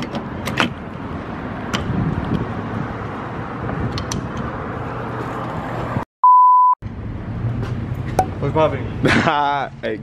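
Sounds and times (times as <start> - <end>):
road traffic: 0.0 - 10.0
wind on microphone: 1.6 - 6.0.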